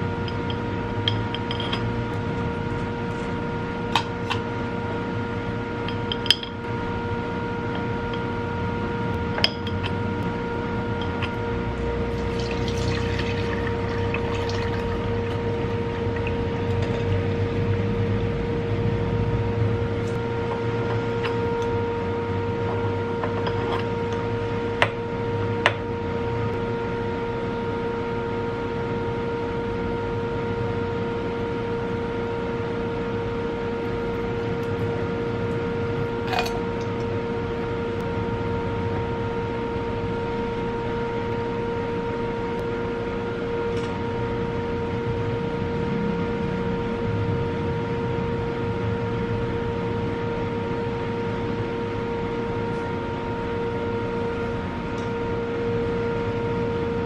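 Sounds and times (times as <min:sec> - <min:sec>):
steady humming tone: 0:00.0 - 0:57.0
oil pouring: 0:12.1 - 0:17.0.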